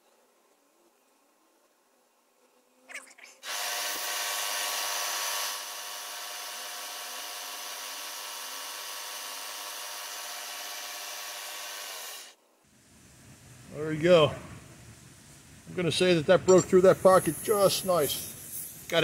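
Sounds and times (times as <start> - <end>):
milling machine drilling metal: 3.5 - 12.3.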